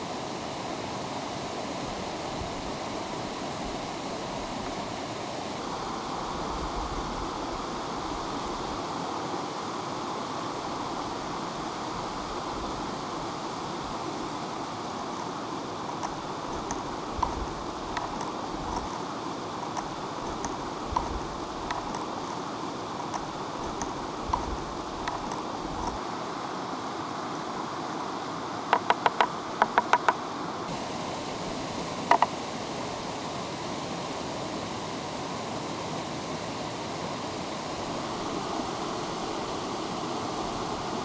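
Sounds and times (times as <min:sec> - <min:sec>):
stream of water running: 0:00.0 - 0:41.0
sharp clicks: 0:15.9 - 0:19.0, 0:19.7 - 0:22.4, 0:23.0 - 0:26.0, 0:28.8 - 0:30.2.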